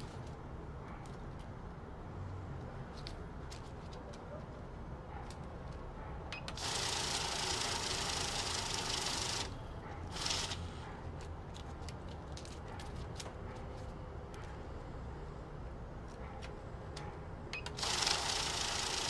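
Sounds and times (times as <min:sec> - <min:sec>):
banknote counter whirring: 0:06.4 - 0:10.7, 0:17.6 - 0:19.0.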